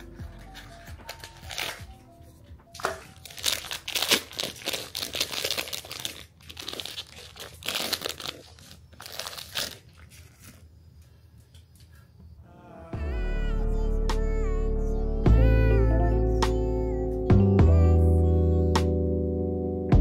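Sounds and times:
crinkling and rustling: 0.0 - 12.0.

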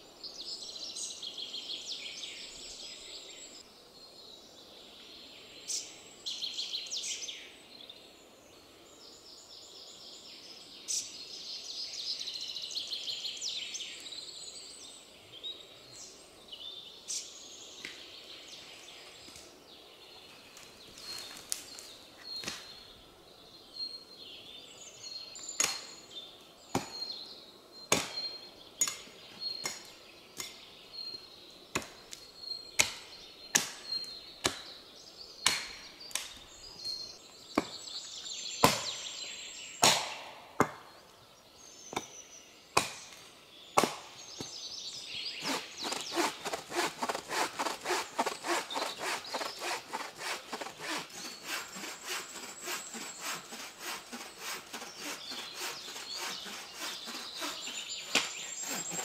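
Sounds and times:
bow saw cutting log: 45.4 - 59.0.

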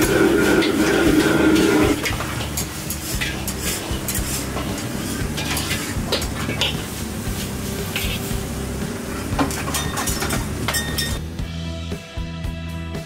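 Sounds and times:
metal ladle scraping a wok: 0.0 - 8.4
light sizzle: 0.0 - 11.2.

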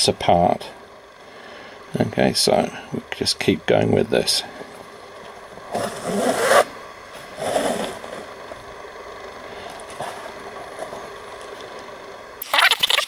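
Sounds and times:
steady background hum: 0.0 - 13.0
thread rasping through leather: 5.7 - 6.7, 7.3 - 8.3.

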